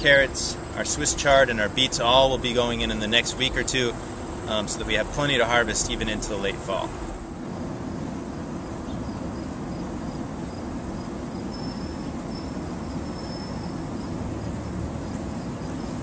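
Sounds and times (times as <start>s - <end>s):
low outdoor rumble: 0.0s - 11.4s
high insect trill: 0.0s - 16.0s.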